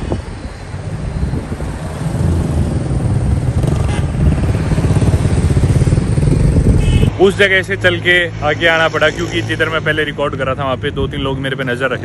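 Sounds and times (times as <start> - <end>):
street traffic rumble: 0.0 - 12.0
motorcycle engine running: 2.7 - 7.1.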